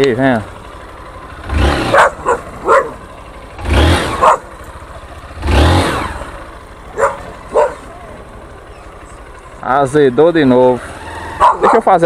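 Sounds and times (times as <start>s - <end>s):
motorcycle engine revving: 0.0s - 12.0s
dog barking: 1.8s - 3.1s, 4.1s - 4.5s, 6.9s - 7.9s, 11.4s - 12.0s.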